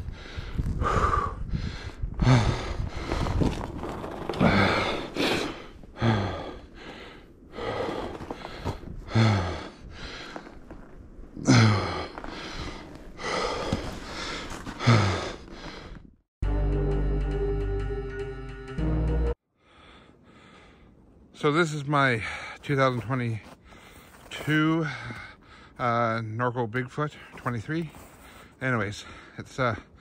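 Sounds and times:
man breathing hard and gasping: 0.0s - 3.5s, 4.4s - 10.6s, 11.4s - 16.1s, 19.6s - 21.0s, 23.6s - 25.8s.

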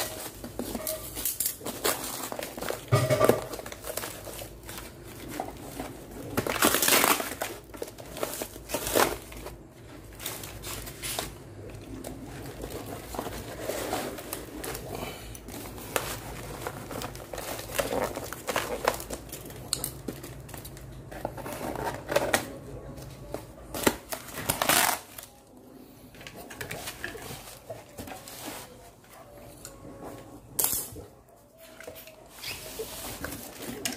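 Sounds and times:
cardboard crumpling and tearing: 0.0s - 22.9s, 23.6s - 25.4s.

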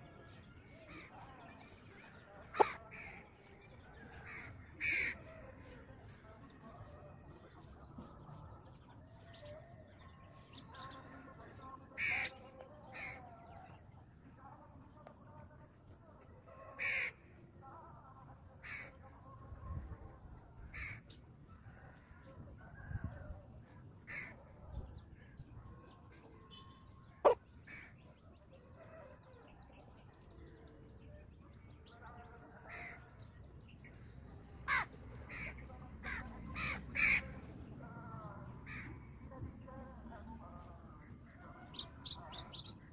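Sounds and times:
harsh bird calls: 0.7s - 5.7s, 11.9s - 13.8s.

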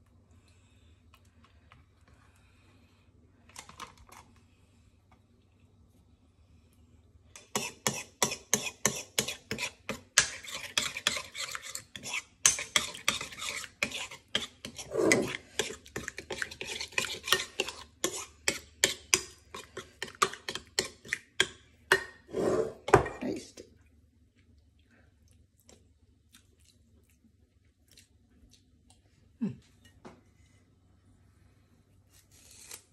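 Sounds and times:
spoon scraping bowl: 7.4s - 23.2s.

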